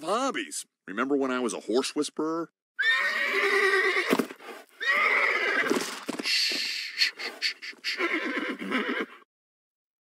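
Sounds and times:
horse whinnying: 2.8 - 9.2.

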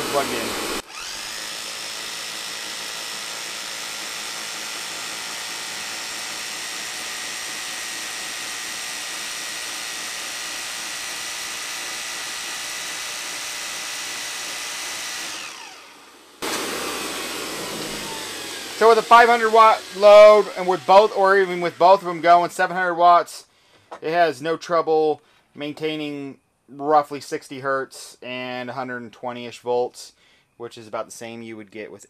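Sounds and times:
hammer drill whining: 0.0 - 23.0.

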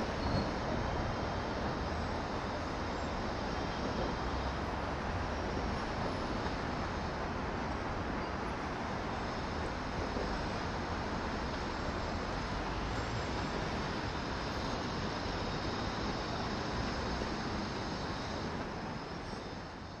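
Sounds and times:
passing traffic hum: 0.0 - 20.0.

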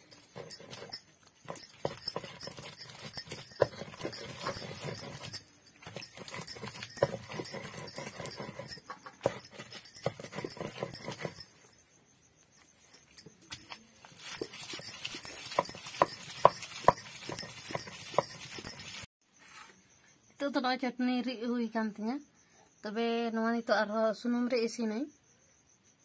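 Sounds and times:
stone roller grinding on stone: 0.0 - 11.8, 12.9 - 19.1.

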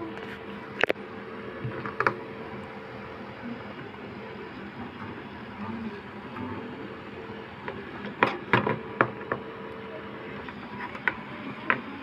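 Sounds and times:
low hum with held tone: 0.0 - 12.0.

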